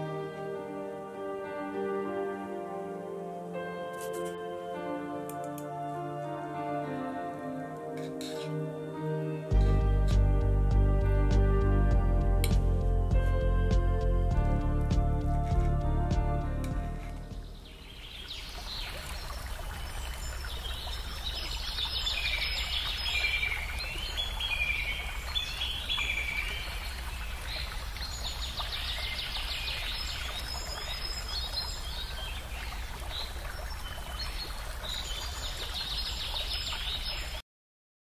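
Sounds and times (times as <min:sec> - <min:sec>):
background hiss: 0:00.0 - 0:09.5
small birds chirping: 0:17.2 - 0:37.4.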